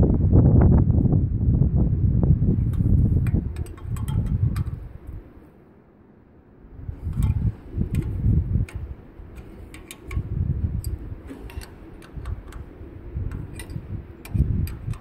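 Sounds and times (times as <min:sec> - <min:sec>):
wrench clicking on metal nuts: 0:03.2 - 0:04.8, 0:07.1 - 0:15.0.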